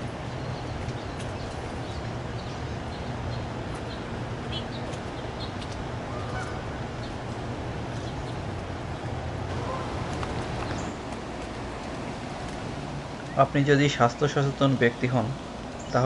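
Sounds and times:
steady low hum: 0.0 - 16.0
high bird calls: 0.4 - 7.2, 7.9 - 11.1
lower bird call: 0.5 - 7.2, 9.5 - 11.0.

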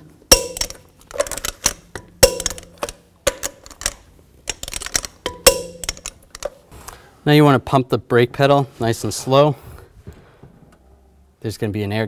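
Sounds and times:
torque wrench metallic clicks: 0.3 - 6.6.

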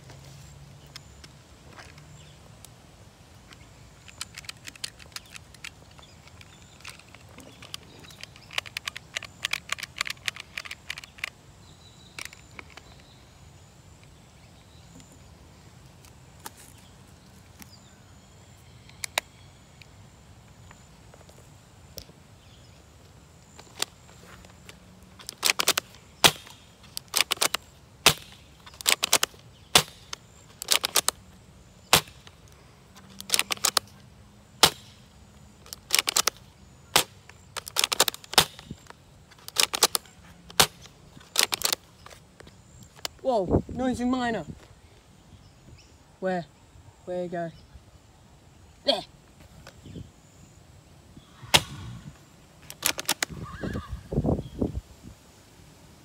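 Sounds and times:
sharp clicks and snaps: 3.5 - 11.4, 25.2 - 31.2, 31.9 - 33.9, 35.6 - 42.2, 52.6 - 53.3.

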